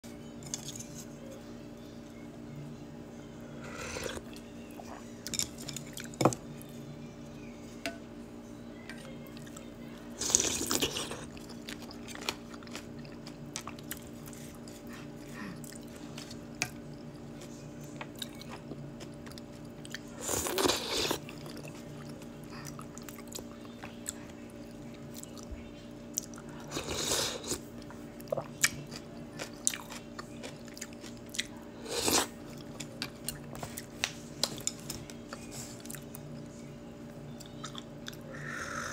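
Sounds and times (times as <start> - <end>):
steady low hum: 0.0 - 38.9
soft chewing: 8.8 - 38.9.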